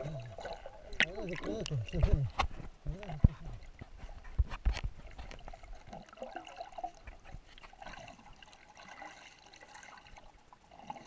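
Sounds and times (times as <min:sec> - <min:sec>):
underwater gurgling and bubbling: 0:00.0 - 0:02.4.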